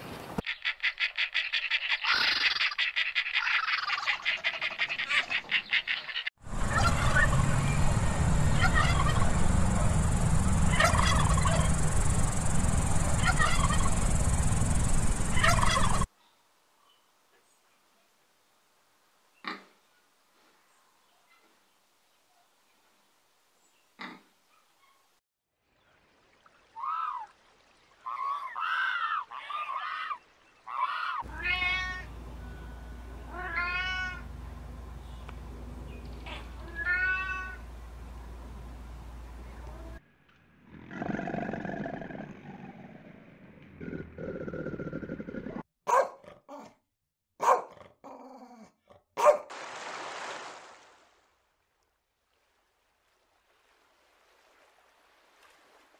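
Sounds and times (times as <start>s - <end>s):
turkeys gobbling: 0.5s - 7.7s, 8.5s - 14.7s, 15.3s - 16.1s, 30.7s - 31.2s
steady low hum: 6.5s - 16.1s, 34.2s - 36.7s
steady low rumble: 6.5s - 16.1s
cat meowing: 31.3s - 32.1s, 33.3s - 34.2s, 36.6s - 37.6s.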